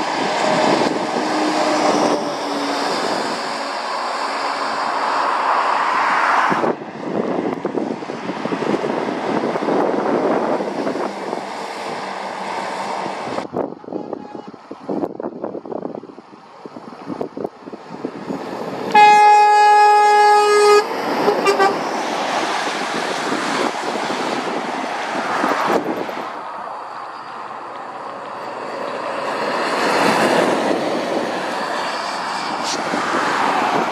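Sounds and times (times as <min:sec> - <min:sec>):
lorry engine and tyres on wet road: 0:00.0 - 0:33.9
lorry horn blast: 0:18.9 - 0:21.8
short horn toots: 0:18.9 - 0:21.8.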